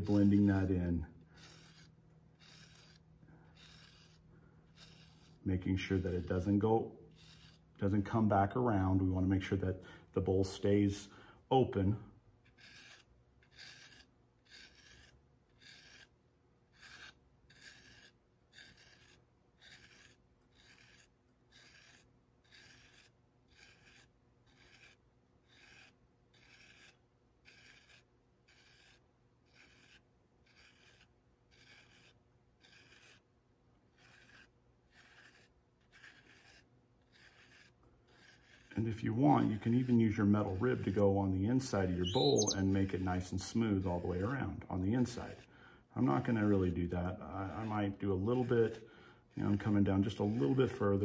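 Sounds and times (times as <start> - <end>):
metal rib scraping clay: 0.0 - 51.0.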